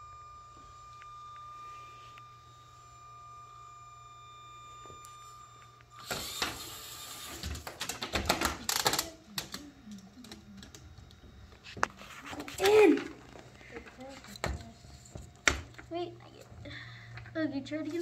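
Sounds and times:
faint steady high tone: 0.0s - 7.5s
plastic parts clicking and rattling: 7.4s - 11.2s.

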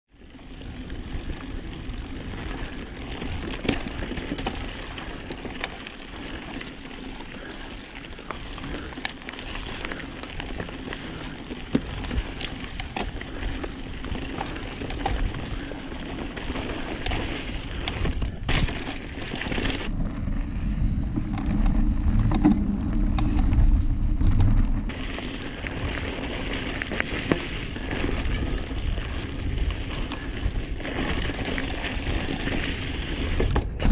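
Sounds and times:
bike tyres on dirt: 0.1s - 33.9s
bike clicks and rattles: 0.2s - 33.9s
wind rumble on microphone: 19.6s - 33.9s.

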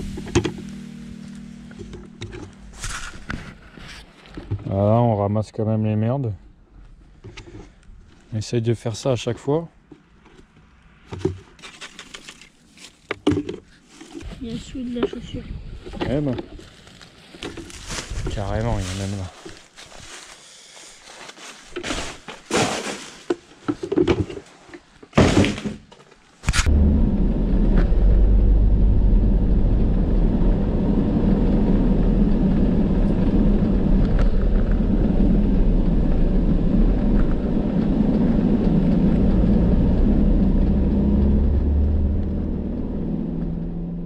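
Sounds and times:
plastic bin bag rustling: 16.1s - 24.6s
vehicle rumble from inside cab: 26.6s - 44.0s.

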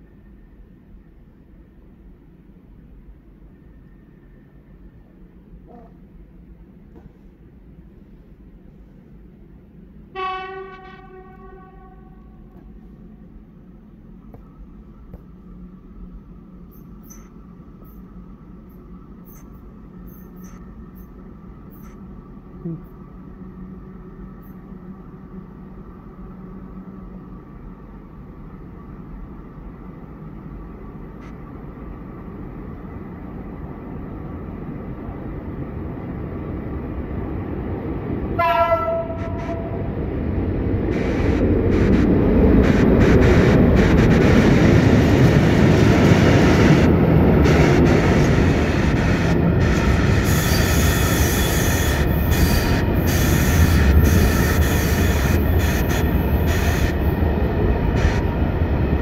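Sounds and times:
electric locomotive rumble: 0.0s - 59.0s
locomotive horn blast: 10.1s - 12.6s, 38.4s - 39.9s
high wheel squeal: 16.7s - 18.0s, 19.2s - 21.1s, 50.2s - 57.0s.

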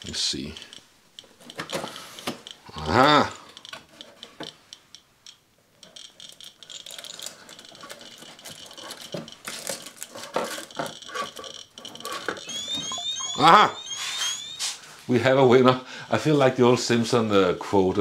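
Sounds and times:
radiation detector ticking: 0.0s - 10.0s, 10.7s - 14.7s
objects knocking and rattling on shelves: 5.8s - 12.4s.

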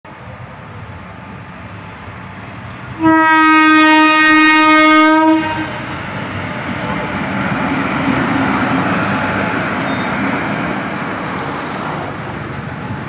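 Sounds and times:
electric locomotive running: 0.1s - 13.0s
train horn blast: 3.0s - 6.1s.

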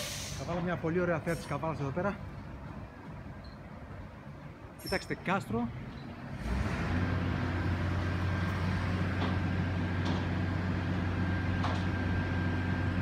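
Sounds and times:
garbage truck humming: 6.3s - 13.0s.

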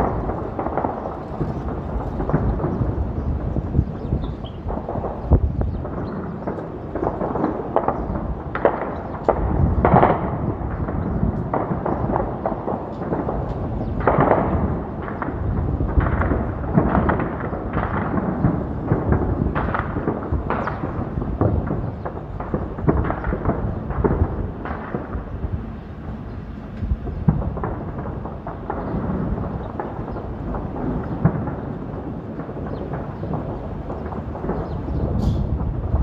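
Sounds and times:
distant gunfire: 0.0s - 25.7s, 27.0s - 36.0s
echoing booms: 0.0s - 36.0s
low rumble: 8.0s - 36.0s.

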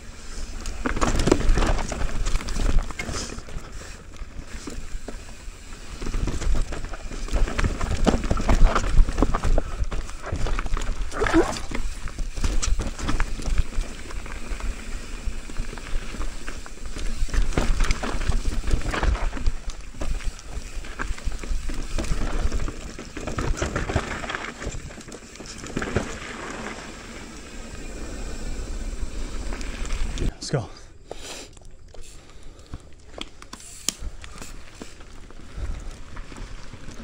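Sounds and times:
bike knocking and rattling: 0.0s - 27.8s
bike tyres crunching on dirt: 0.0s - 37.0s.

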